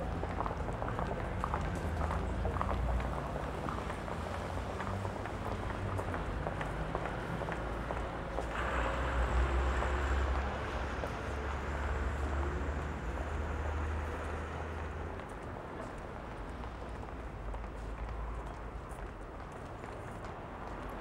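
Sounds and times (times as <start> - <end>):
vehicle engine rumble: 0.0 - 21.0
traffic hiss on wet road: 4.4 - 15.2.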